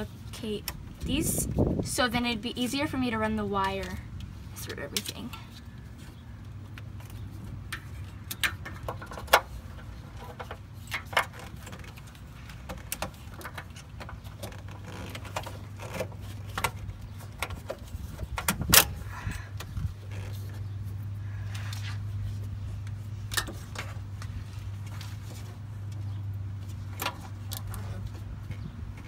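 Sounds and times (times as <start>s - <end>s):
steady low hum: 0.0s - 29.0s
plastic hoses clicking and rattling: 5.9s - 29.0s.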